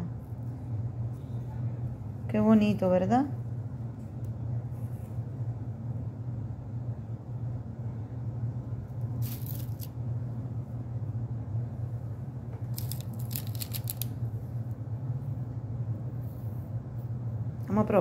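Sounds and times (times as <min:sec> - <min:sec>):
steady low hum: 0:00.0 - 0:18.0
crisp paper crackling: 0:12.7 - 0:14.2.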